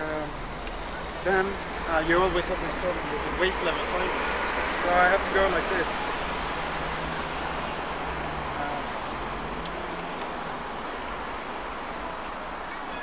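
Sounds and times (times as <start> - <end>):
cars passing on street: 0.0 - 13.0.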